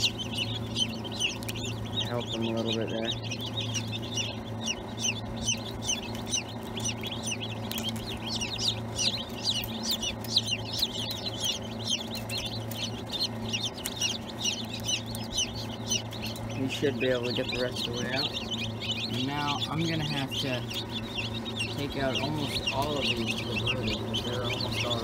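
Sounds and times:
chicks peeping: 0.0s - 25.0s
steady low hum: 0.0s - 25.0s.

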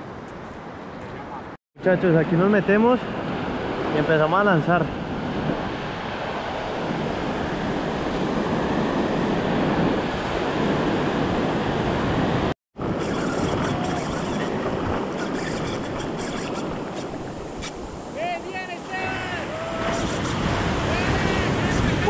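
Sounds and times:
ocean surf breaking: 1.8s - 22.0s.

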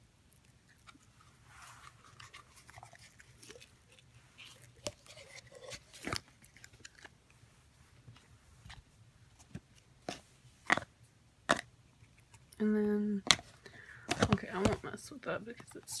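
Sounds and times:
light rustling and scraping: 0.8s - 10.5s.

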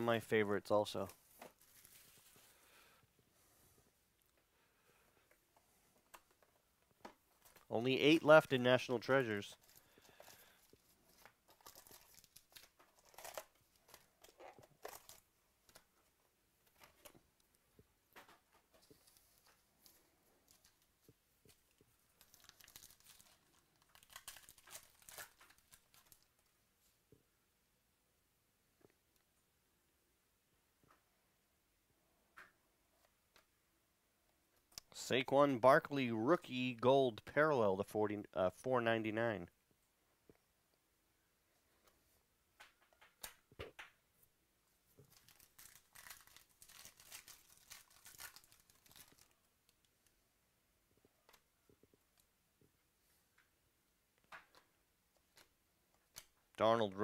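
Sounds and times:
foil wrapper crinkling and tearing: 9.6s - 15.8s, 22.1s - 26.3s, 45.1s - 49.4s.

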